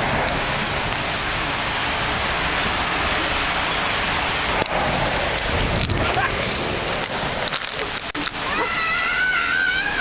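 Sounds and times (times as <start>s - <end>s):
water rushing and spraying: 0.0s - 10.0s.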